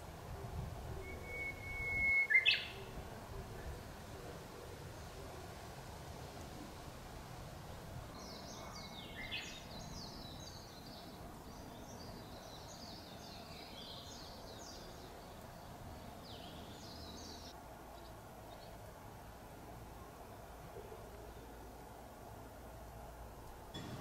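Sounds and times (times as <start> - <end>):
songbird twittering: 1.0 - 2.9.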